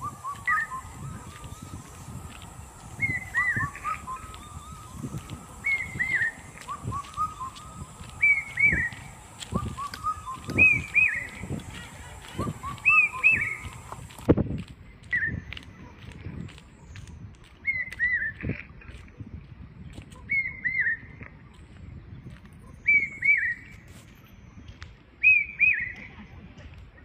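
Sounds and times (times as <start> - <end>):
bird calling: 0.0 - 14.2.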